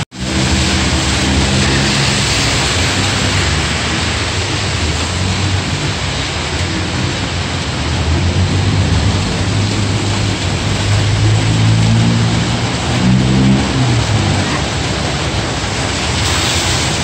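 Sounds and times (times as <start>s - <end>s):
car engines running: 0.0s - 17.0s
heavy rain hissing: 0.0s - 17.0s.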